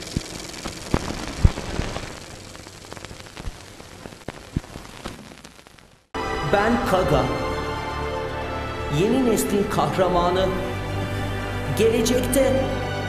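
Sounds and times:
electronic static crackle: 0.0s - 6.2s.

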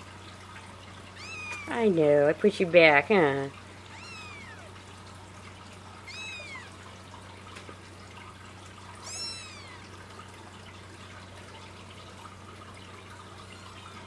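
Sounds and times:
faint steady hum: 0.0s - 14.0s
kitten mewing: 1.2s - 1.8s, 3.9s - 4.7s, 6.1s - 6.8s, 9.0s - 9.8s.

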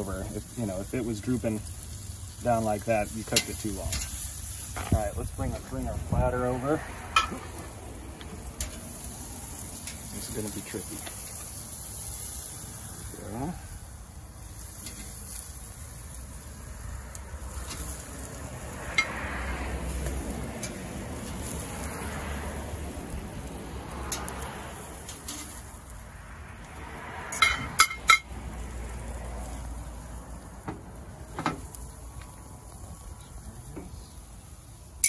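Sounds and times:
metal tongs clinking on grill: 3.0s - 5.0s, 8.5s - 9.1s, 9.7s - 12.3s, 14.7s - 15.4s, 17.6s - 18.0s, 20.6s - 20.8s, 25.0s - 25.7s, 27.3s - 28.3s.

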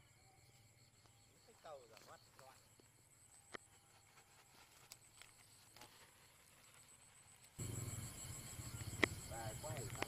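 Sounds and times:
leaves brushing camera: 3.7s - 7.6s.

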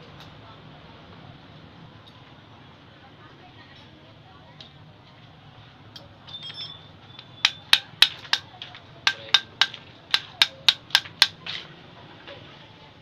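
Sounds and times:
metal tool tapping metal: 6.0s - 11.4s.

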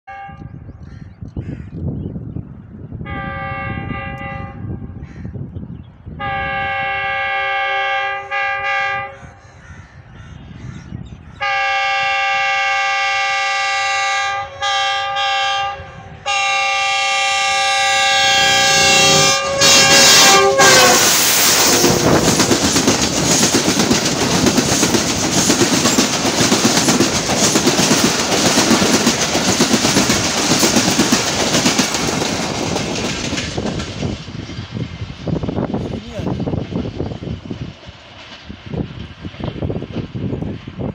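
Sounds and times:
locomotive horn blasts: 0.1s - 0.6s, 3.0s - 4.8s, 6.2s - 9.2s, 11.4s - 22.1s
train passing with wheels clattering: 16.3s - 40.9s.

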